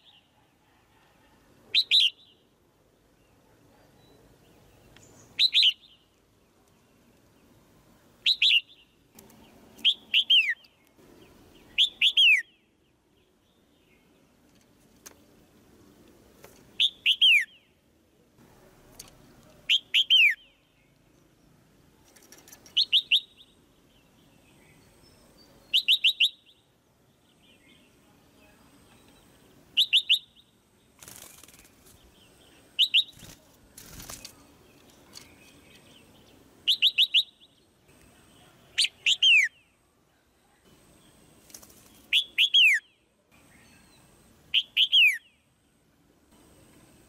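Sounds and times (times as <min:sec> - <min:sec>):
bulbul sharp calls: 0:05.1 - 0:06.0, 0:08.2 - 0:08.9, 0:09.8 - 0:10.8, 0:11.6 - 0:12.6, 0:16.8 - 0:17.7, 0:19.6 - 0:20.6, 0:22.6 - 0:23.6, 0:25.7 - 0:26.7, 0:29.7 - 0:31.6, 0:36.6 - 0:37.6, 0:38.7 - 0:39.7, 0:42.0 - 0:43.0, 0:44.5 - 0:45.4.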